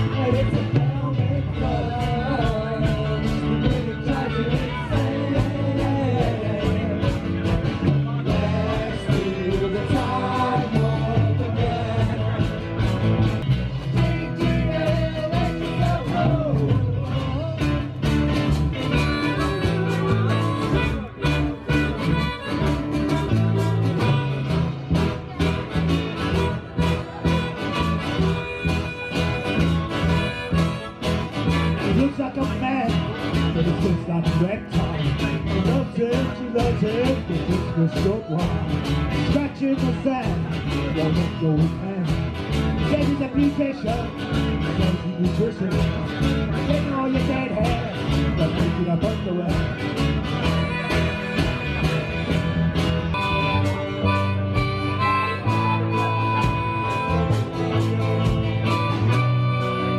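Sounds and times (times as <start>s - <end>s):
blues band playing: 0.0s - 59.9s
harmonica: 18.0s - 33.5s, 49.6s - 59.9s.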